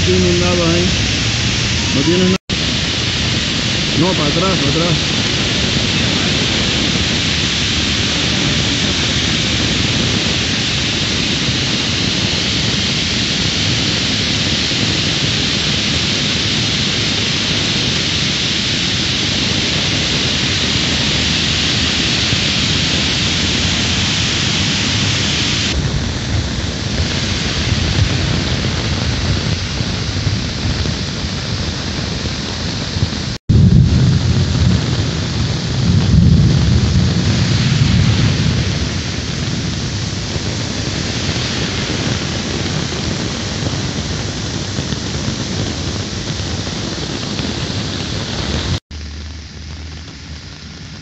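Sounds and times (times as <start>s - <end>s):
floodwater rushing over rock: 0.0s - 46.8s
heavy rain: 0.0s - 51.0s.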